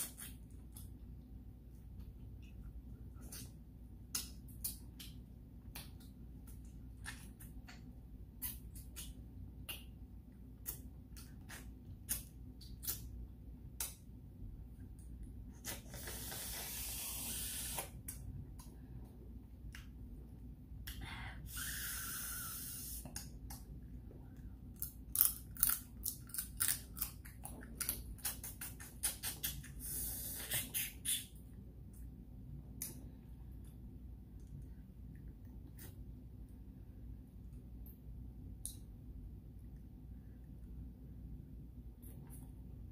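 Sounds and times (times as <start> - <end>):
lip smacks and chewing: 1.9 - 13.1, 26.1 - 32.1
sucking hisses: 15.8 - 17.9, 21.4 - 23.1.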